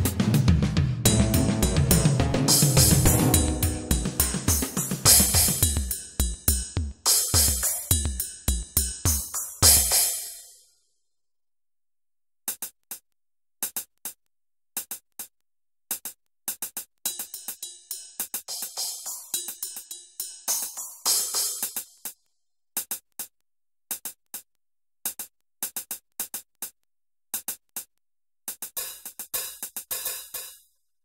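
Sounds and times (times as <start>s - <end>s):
electronic music with drum beat: 0.0s - 10.2s, 28.8s - 30.5s
clicking percussion: 1.1s - 6.2s.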